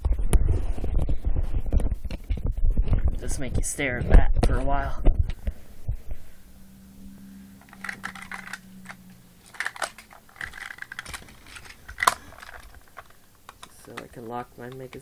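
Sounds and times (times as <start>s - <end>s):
plastic toy clicks and rattles: 7.6s - 15.0s.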